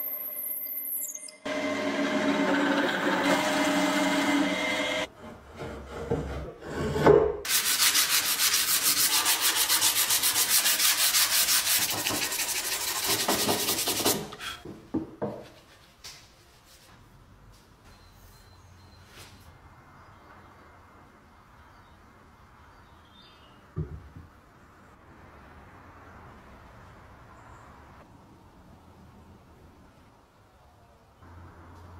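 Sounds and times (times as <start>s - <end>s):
drill press boring into wood: 1.5s - 5.0s
sandpaper sanding wood by hand: 7.5s - 14.4s.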